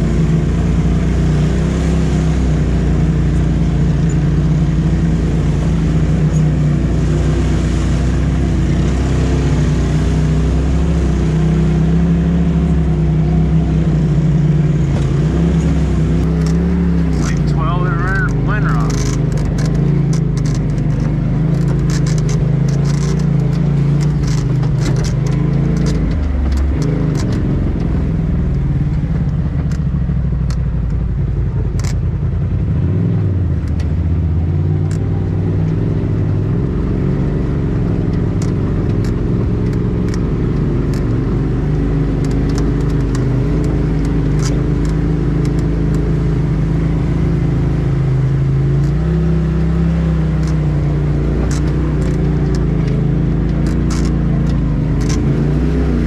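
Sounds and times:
engine running: 0.0 - 56.0
clicks and rattles: 18.2 - 28.0, 31.7 - 32.1, 42.0 - 46.2, 50.2 - 56.0.

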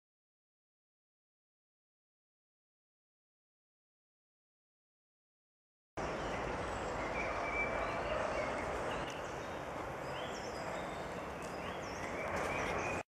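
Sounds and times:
steady rushing background noise: 6.0 - 13.0.

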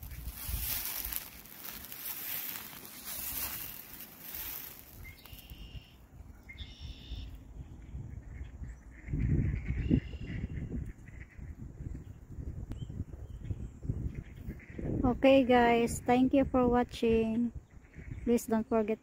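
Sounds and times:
rustling on microphone: 0.0 - 5.8
short bird calls: 3.2 - 7.4.

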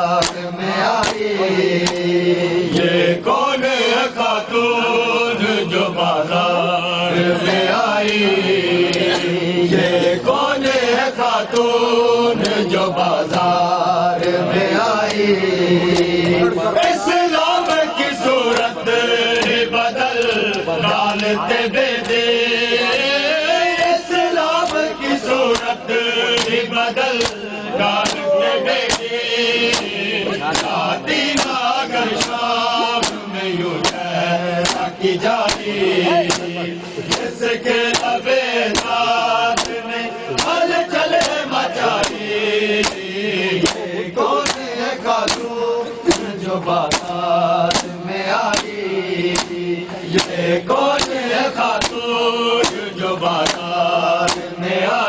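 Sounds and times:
men chanting in unison: 0.0 - 55.0
hands slapping bare chests: 0.2 - 2.1, 8.9 - 9.4, 15.0 - 15.2, 15.9 - 17.0, 18.5 - 18.7, 22.0 - 22.2, 25.5 - 42.2, 42.8 - 45.5, 46.1 - 52.0, 52.6 - 54.6.

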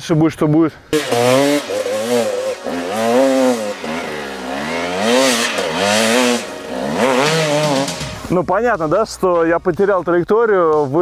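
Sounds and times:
motorcycle engine revving: 1.0 - 8.4.

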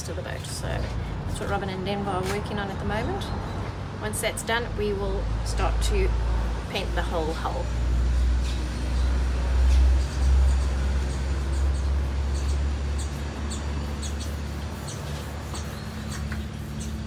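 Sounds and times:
paint roller squeaking: 11.2 - 17.0.

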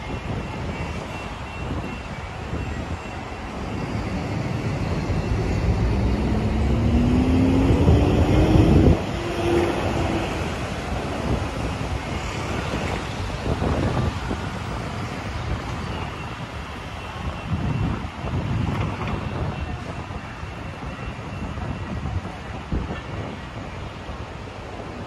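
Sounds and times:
traffic rumble: 0.0 - 25.0
vehicle accelerating: 3.6 - 13.1.

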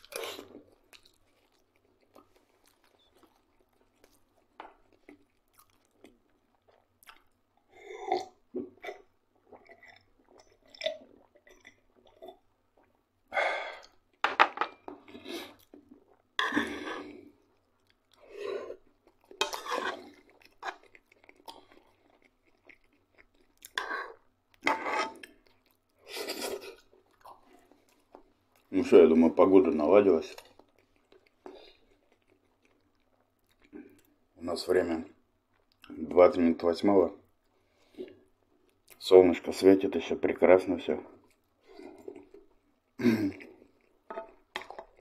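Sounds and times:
close-up chewing: 0.0 - 13.0, 15.0 - 28.7, 30.1 - 34.2.

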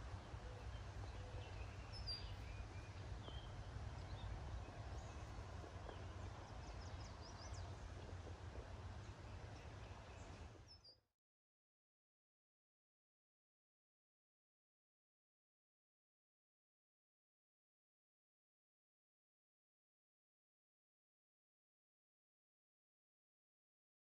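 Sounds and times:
low steady rumble: 0.0 - 10.8
bird chirps: 0.5 - 4.3.

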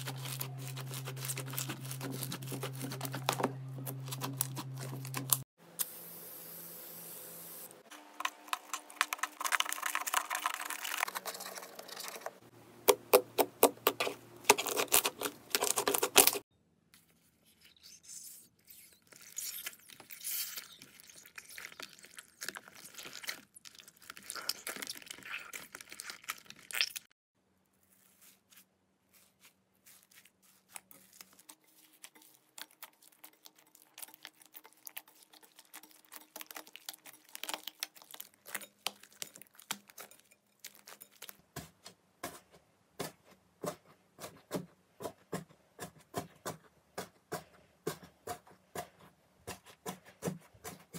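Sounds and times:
slime crackling and squelching: 0.0 - 5.5, 8.2 - 12.2, 13.4 - 16.5, 18.0 - 27.1, 27.8 - 41.4.

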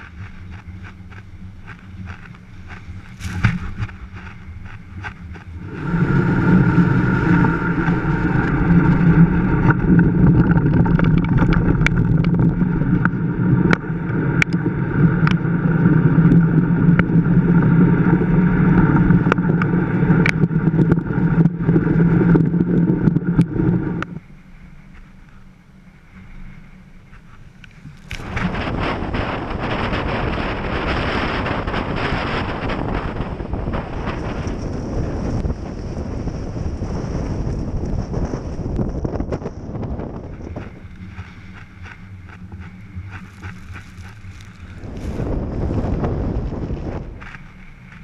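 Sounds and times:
sharp ticks: 0.0 - 5.6
wind rushing over microphone: 0.0 - 25.0, 26.0 - 48.0.

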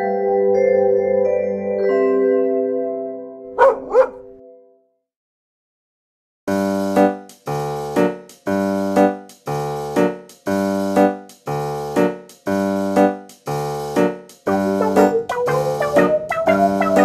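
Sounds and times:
keyboard playing chords: 14.0 - 17.0.

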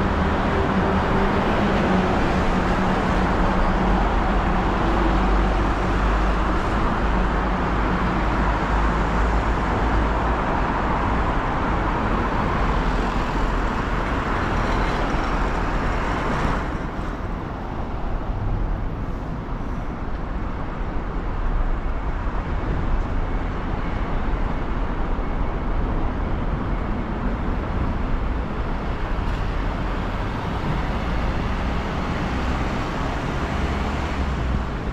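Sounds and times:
road traffic rumble: 0.0 - 34.9.

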